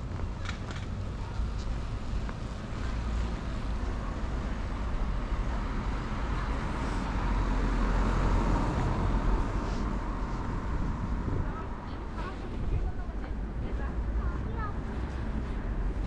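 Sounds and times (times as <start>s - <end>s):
street traffic hum: 0.0s - 16.0s
car passing: 2.0s - 12.1s.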